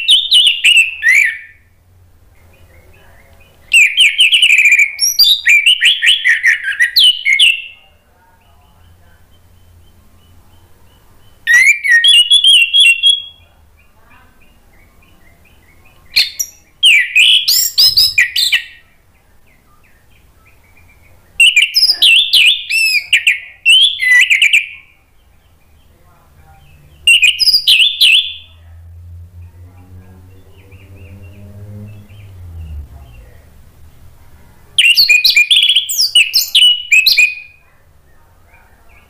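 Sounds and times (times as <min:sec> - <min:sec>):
thrush singing whistled phrases: 0:00.0 - 0:01.6, 0:03.7 - 0:07.8, 0:11.4 - 0:13.4, 0:15.4 - 0:18.8, 0:21.4 - 0:24.9, 0:27.1 - 0:28.6, 0:34.8 - 0:37.6.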